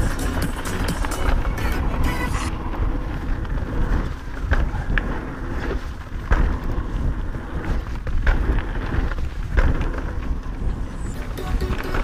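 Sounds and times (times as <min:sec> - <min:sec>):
bike rattling over bumps: 0:00.0 - 0:12.0
bike tyres rumbling on dirt: 0:00.0 - 0:12.0
wind buffeting microphone: 0:00.0 - 0:12.0.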